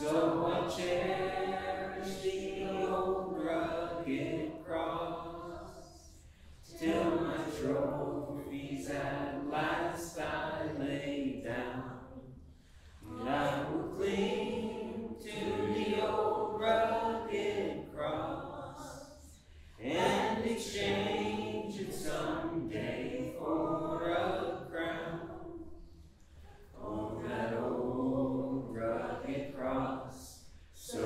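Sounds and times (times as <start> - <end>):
congregation singing a hymn: 0.0 - 31.0.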